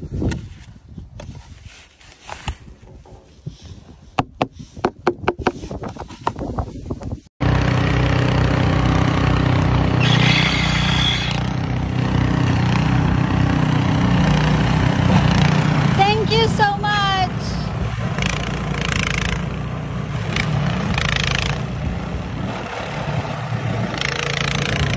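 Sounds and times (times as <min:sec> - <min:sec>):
snowblower engine running: 0:07.4 - 0:24.9.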